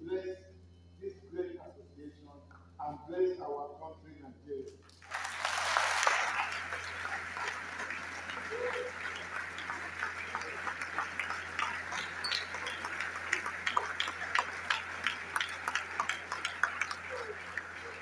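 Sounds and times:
audience applauding: 4.9s - 18.0s.

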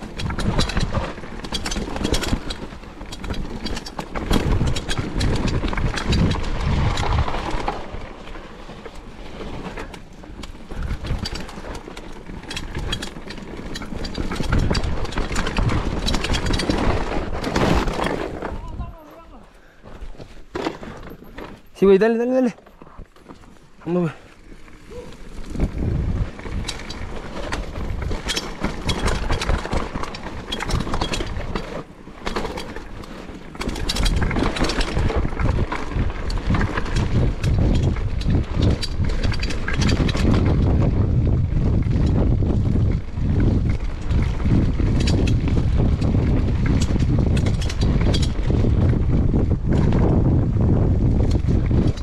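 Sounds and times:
bike clattering over rough ground: 0.0s - 52.0s
wind buffeting microphone: 3.0s - 8.2s, 24.9s - 31.6s, 33.6s - 52.0s.

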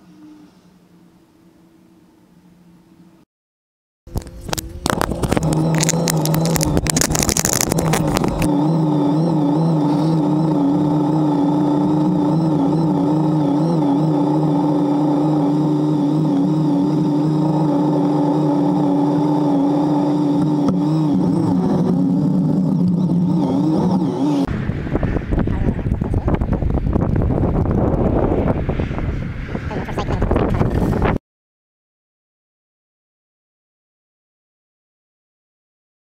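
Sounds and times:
motorcycle engine running: 4.1s - 31.2s.

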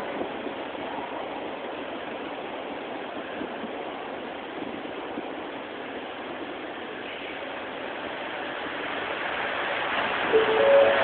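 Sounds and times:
train rolling in: 0.0s - 11.0s
rising electronic chime: 10.4s - 11.0s.

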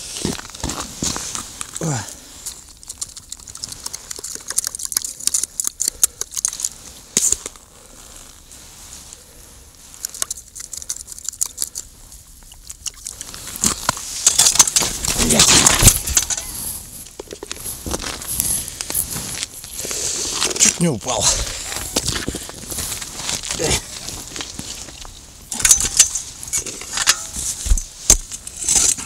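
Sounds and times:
footsteps crunching on ice: 0.0s - 1.8s
groundbait crackling in plastic bucket: 0.4s - 7.6s.

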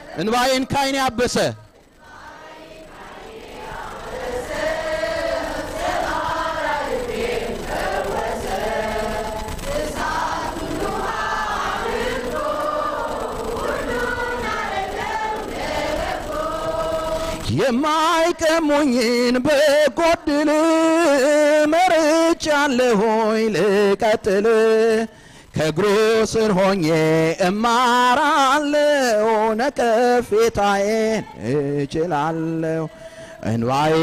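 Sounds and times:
congregation singing a hymn: 0.0s - 34.0s.

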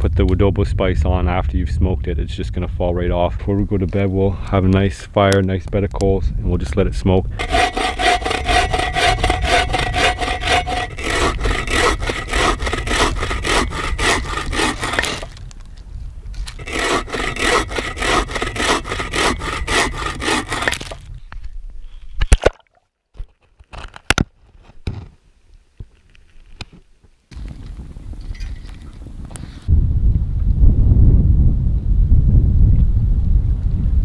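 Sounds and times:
saw cutting through log: 7.4s - 15.4s, 16.5s - 21.1s
sharp knocks: 16.6s - 21.0s.

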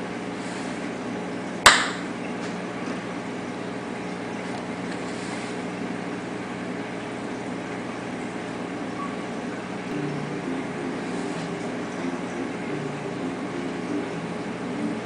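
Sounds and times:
aquarium equipment hum and hiss: 0.0s - 15.0s
higher drone: 9.2s - 15.0s
low drone: 9.9s - 15.0s.

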